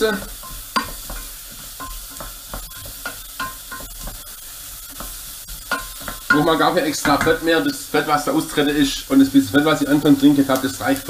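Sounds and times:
onion sizzling in fat: 0:00.0 - 0:11.0.

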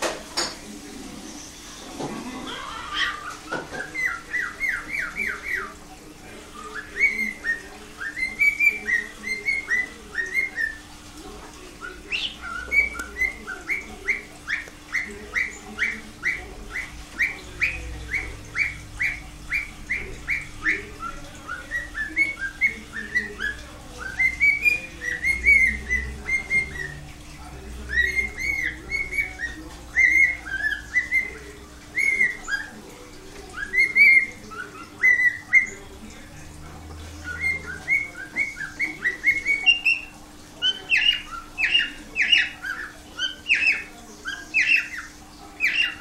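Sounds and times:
cockatiel whistling: 0:06.6 - 0:10.8, 0:11.8 - 0:27.0, 0:27.9 - 0:32.8, 0:33.5 - 0:35.8, 0:37.2 - 0:46.0.

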